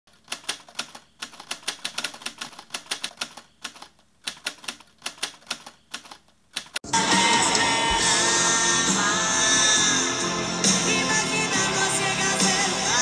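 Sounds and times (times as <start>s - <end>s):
rapid typing clicks: 0.1s - 6.8s.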